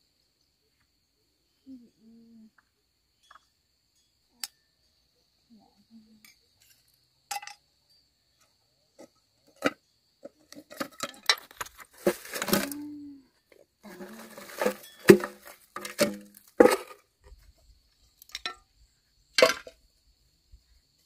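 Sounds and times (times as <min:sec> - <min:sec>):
hard objects clinking: 0:13.9 - 0:17.0.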